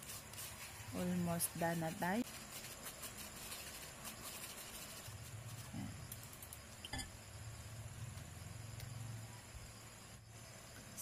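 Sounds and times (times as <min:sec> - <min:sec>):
utensil scraping a mesh sieve: 0:00.0 - 0:06.6.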